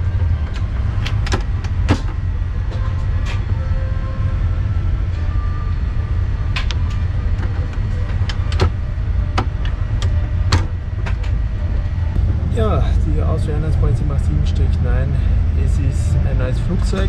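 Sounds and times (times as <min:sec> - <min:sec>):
airliner cabin hum: 0:00.0 - 0:17.0
sharp clicks and knocks: 0:06.5 - 0:11.4.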